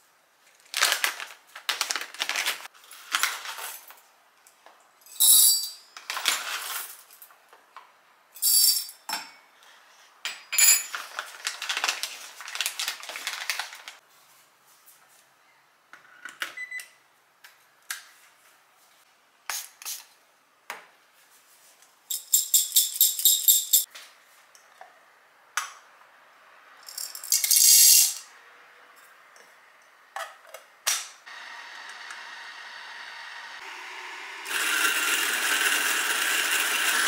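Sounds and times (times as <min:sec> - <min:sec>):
coffee grinder motor running: 0:31.3 - 0:37.0
coffee beans rattling into hopper: 0:34.5 - 0:37.0.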